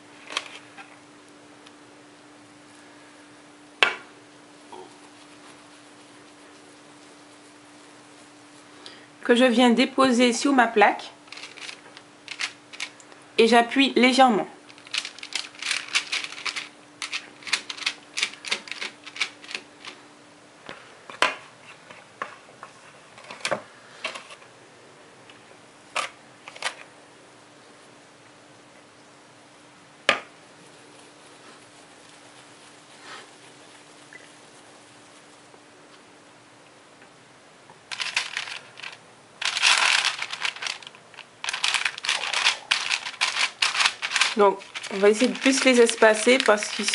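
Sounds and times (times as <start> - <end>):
parchment paper crinkling: 0.2 - 1.0, 5.0 - 8.7, 11.2 - 13.1, 14.6 - 20.0, 37.9 - 46.9.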